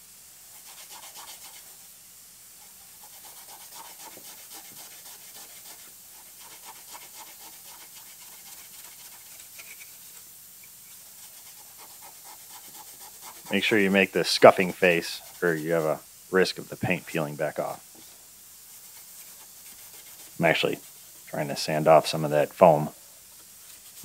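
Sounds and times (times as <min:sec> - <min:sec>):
scuff pad scratching metal: 0:00.5 - 0:01.8, 0:02.6 - 0:10.2, 0:10.9 - 0:16.0, 0:18.7 - 0:21.0.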